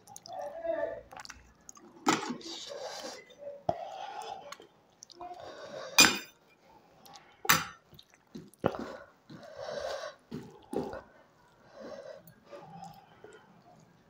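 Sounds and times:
wet squishing of mixing rice: 0:07.0 - 0:14.0.

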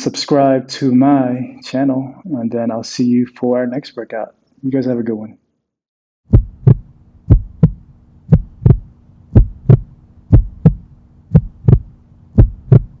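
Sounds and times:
heartbeat: 0:06.3 - 0:13.0
steady low hum: 0:06.3 - 0:13.0.

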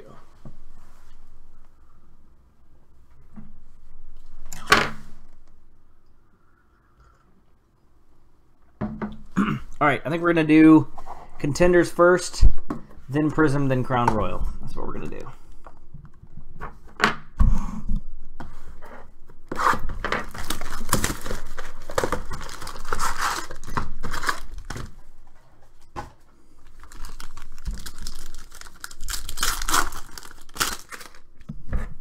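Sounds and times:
cardboard box tearing and crinkling: 0:19.5 - 0:24.8, 0:26.8 - 0:31.2
foil pack tearing: 0:19.6 - 0:24.8, 0:26.6 - 0:31.3.

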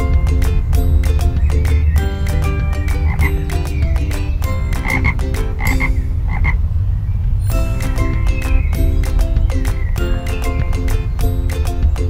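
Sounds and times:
frog croaking: 0:03.0 - 0:03.4, 0:04.8 - 0:06.6.

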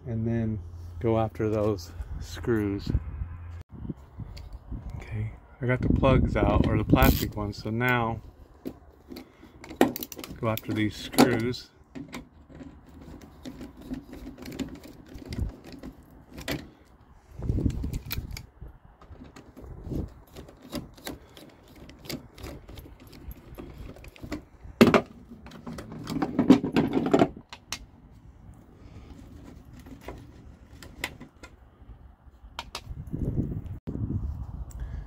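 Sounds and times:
screwdriver clicks and metallic clinks: 0:07.0 - 0:07.3, 0:17.6 - 0:18.5, 0:19.2 - 0:24.4
handling noise: 0:08.4 - 0:31.7.

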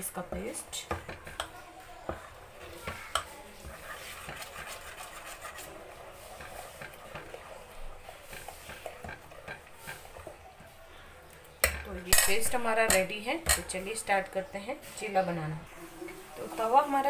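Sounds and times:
spoon scraping batter in saucepan: 0:00.3 - 0:11.1.

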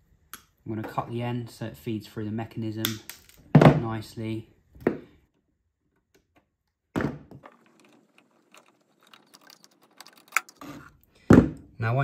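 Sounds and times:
small metallic clicks: 0:07.4 - 0:11.0.

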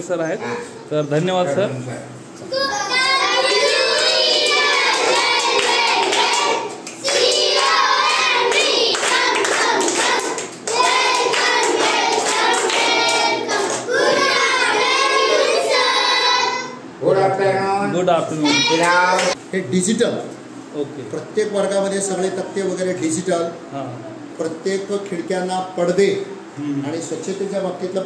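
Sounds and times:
children singing in unison: 0:02.5 - 0:16.8
hand claps: 0:04.0 - 0:13.9.

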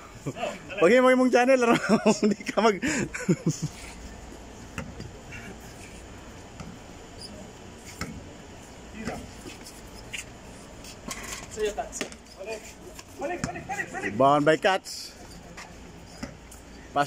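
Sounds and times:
shoes and ball on concrete court: 0:04.7 - 0:14.1, 0:15.2 - 0:16.6.

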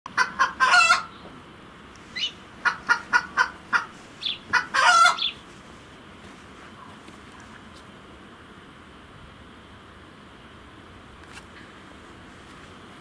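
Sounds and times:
chicken clucking: 0:00.2 - 0:01.1, 0:02.2 - 0:05.4.

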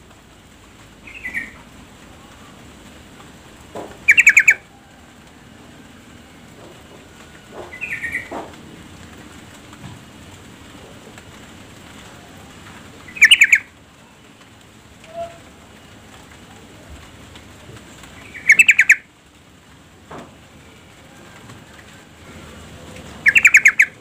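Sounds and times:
bird chattering calls: 0:04.1 - 0:04.6, 0:07.6 - 0:08.4, 0:13.1 - 0:13.7, 0:18.2 - 0:19.0, 0:23.2 - 0:24.0.

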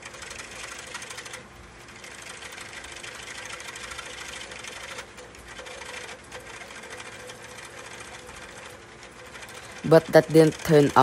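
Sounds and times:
gouge cutting turning wood: 0:00.0 - 0:11.0.

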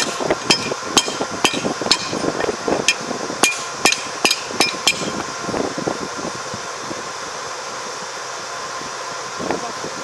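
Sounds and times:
hammer striking steel: 0:00.0 - 0:02.2, 0:02.9 - 0:05.2.

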